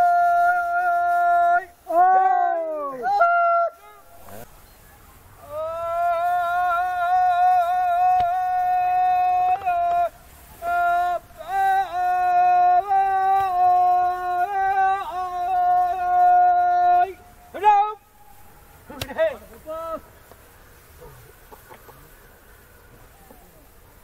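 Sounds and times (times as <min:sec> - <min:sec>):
person chanting: 0:00.0 - 0:04.5, 0:05.4 - 0:18.1.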